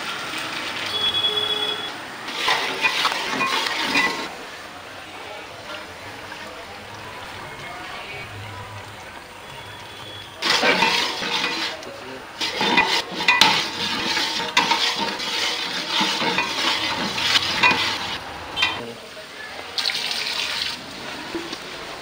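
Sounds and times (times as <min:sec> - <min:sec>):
curry sizzling in oil: 0:00.0 - 0:04.7, 0:08.7 - 0:19.0
metal ladle scraping pot: 0:02.3 - 0:04.4, 0:05.6 - 0:18.9.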